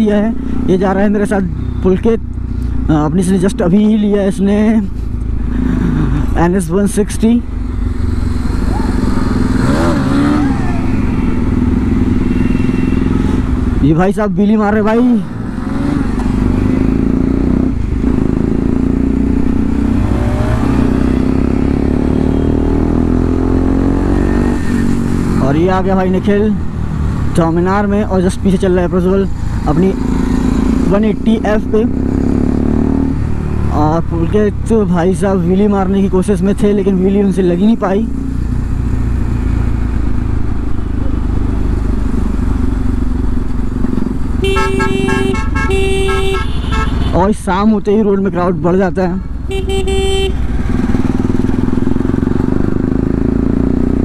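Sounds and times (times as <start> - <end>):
motorcycle engine running: 38.9 - 47.2, 49.4 - 54.0.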